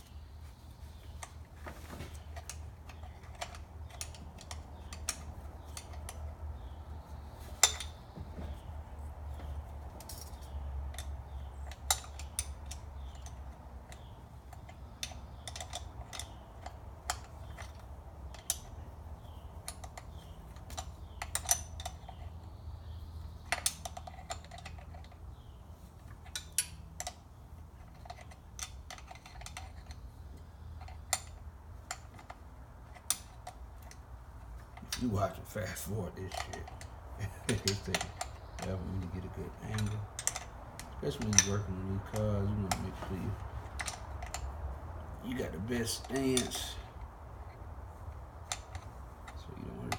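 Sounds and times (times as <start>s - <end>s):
steady low hum: 0.0s - 49.9s
wrench clicking on bolts: 10.0s - 18.8s, 19.6s - 22.3s, 36.3s - 44.6s.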